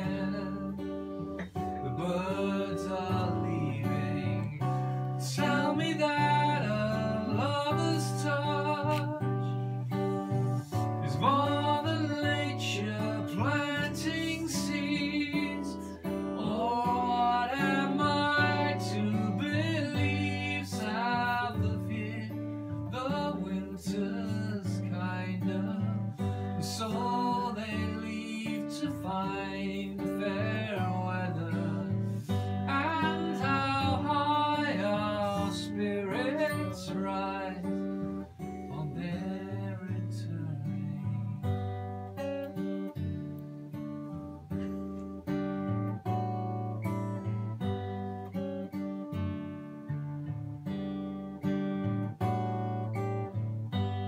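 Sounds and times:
man singing: 0:00.0 - 0:41.6
acoustic guitar: 0:00.0 - 0:54.0.

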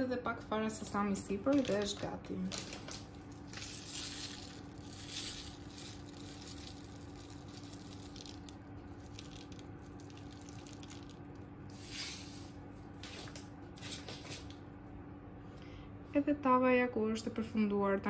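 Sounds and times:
steady low hum: 0:00.0 - 0:18.0
seeds pattering on fish: 0:02.6 - 0:11.4.

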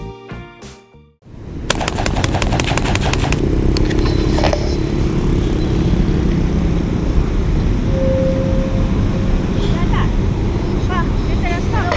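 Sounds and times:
vehicle rumble: 0:01.2 - 0:11.9
rapid sharp clicks: 0:01.7 - 0:03.9.

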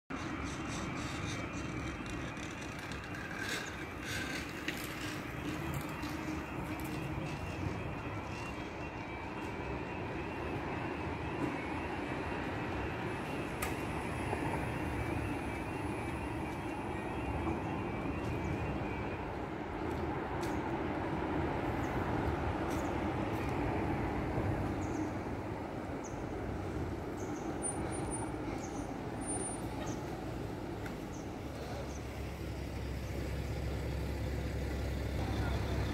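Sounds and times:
low street noise rumble: 0:00.1 - 0:35.9
level crossing alarm: 0:00.7 - 0:20.2.

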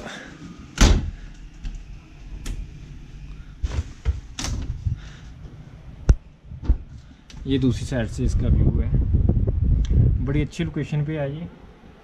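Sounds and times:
wooden window opening: 0:00.0 - 0:05.7.

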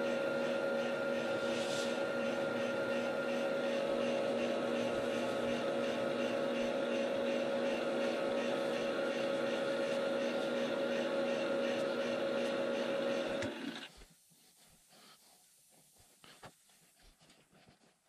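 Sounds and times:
lathe motor humming: 0:00.0 - 0:13.9.

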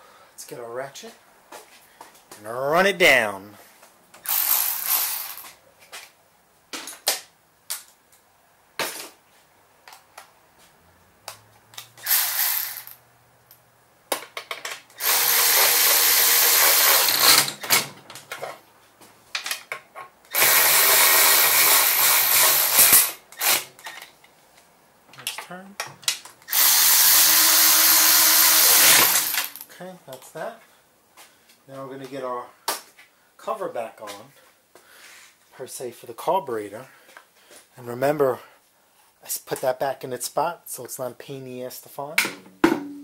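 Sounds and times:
electric ratchet motor: 0:04.2 - 0:05.4, 0:12.0 - 0:13.0, 0:15.0 - 0:17.8, 0:20.3 - 0:23.6, 0:26.5 - 0:29.6
tools clicking and clattering: 0:16.8 - 0:18.6.

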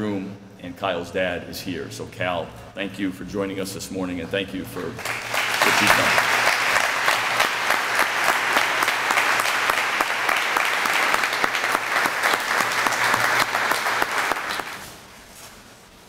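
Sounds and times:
audience applauding: 0:05.0 - 0:15.0.

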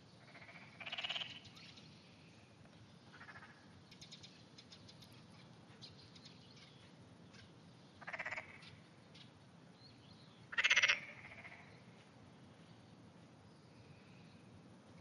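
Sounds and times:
frog croaking: 0:00.2 - 0:01.4, 0:03.1 - 0:03.6, 0:08.0 - 0:08.6, 0:10.5 - 0:11.7.

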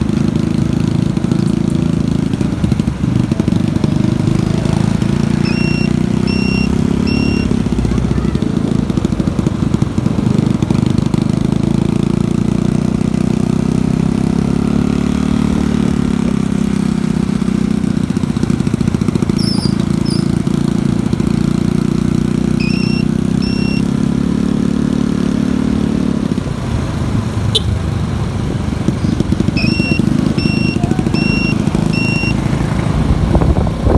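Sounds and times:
motorcycle engine running: 0:00.0 - 0:33.9
short high beeps: 0:05.3 - 0:07.7, 0:22.5 - 0:23.9, 0:29.5 - 0:32.5
wind noise: 0:33.0 - 0:33.9.

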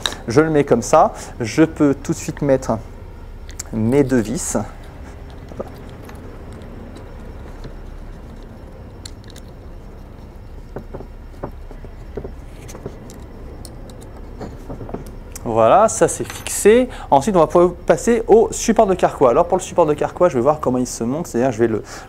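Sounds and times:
low steady hum: 0:00.0 - 0:22.0
screws turned with small tool: 0:03.4 - 0:14.4.

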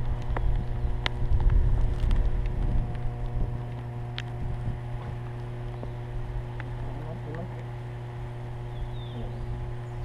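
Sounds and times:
wind buffeting microphone: 0:00.0 - 0:07.0
steady low hum: 0:00.0 - 0:10.0.

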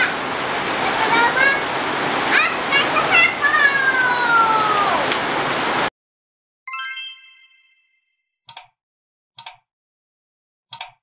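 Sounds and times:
child calling out: 0:00.0 - 0:00.2, 0:00.9 - 0:01.7, 0:02.3 - 0:05.1
rain pouring: 0:00.0 - 0:05.9
bright chime ding: 0:06.7 - 0:08.2
mouse-click sound effects: 0:08.5 - 0:08.7, 0:09.4 - 0:09.6, 0:10.7 - 0:11.0.

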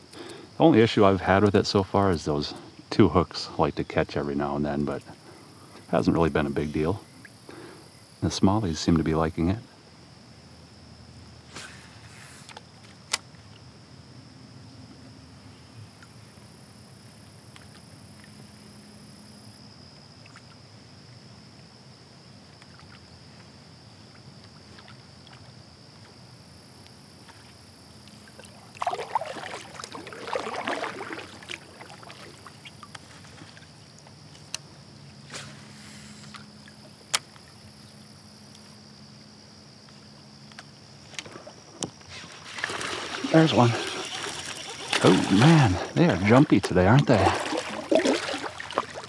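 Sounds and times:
paddle splashing: 0:22.5 - 0:26.3, 0:27.1 - 0:37.9, 0:41.1 - 0:49.0
water dripping: 0:28.0 - 0:33.1, 0:42.6 - 0:49.0.

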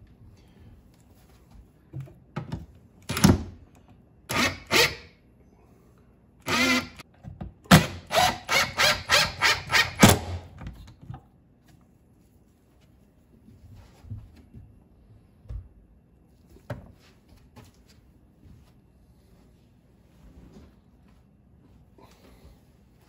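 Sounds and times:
cordless drill driving screws: 0:04.3 - 0:05.0, 0:06.4 - 0:07.0, 0:07.8 - 0:10.3.

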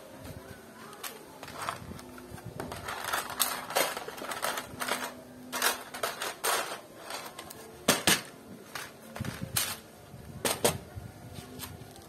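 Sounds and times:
mini bricks clattering in plastic tub: 0:01.0 - 0:09.8.

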